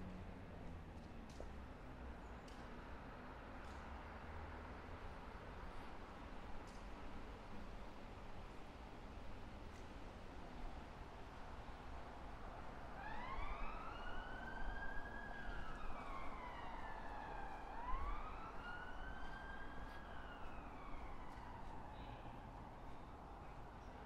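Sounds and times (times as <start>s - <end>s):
emergency siren wailing: 12.9s - 22.8s.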